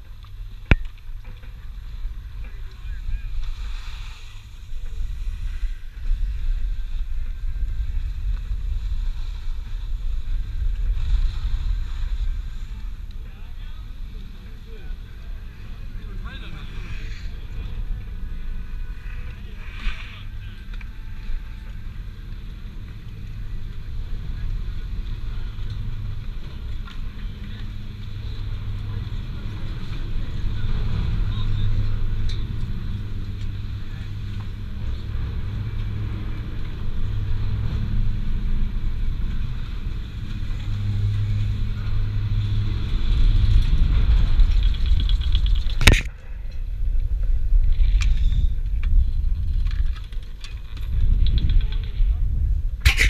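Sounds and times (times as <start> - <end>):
chairlift machinery humming: 0.0 - 51.0
skis sliding over snow: 1.5 - 13.2
wind buffeting microphone: 4.4 - 53.0.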